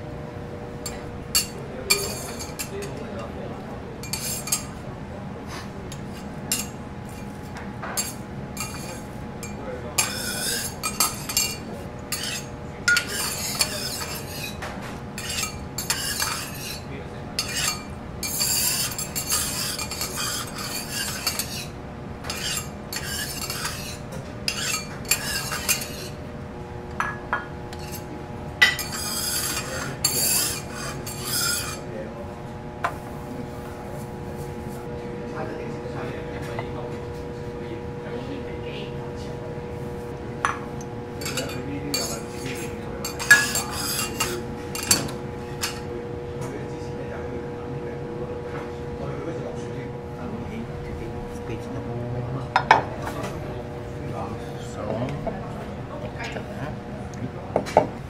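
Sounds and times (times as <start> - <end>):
steady low hum: 0.0 - 58.0
metal spatulas scraping on griddle: 1.4 - 2.9, 4.0 - 4.7, 8.0 - 9.1, 10.0 - 26.2, 27.7 - 31.9, 41.2 - 45.8.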